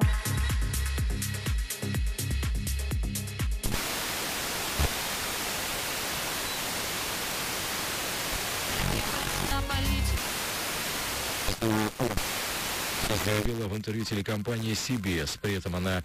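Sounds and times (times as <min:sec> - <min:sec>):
music with a beat on radio: 0:00.0 - 0:03.9
radio signal snatch: 0:03.6 - 0:09.5, 0:10.2 - 0:13.5
radio static hiss: 0:03.6 - 0:16.0.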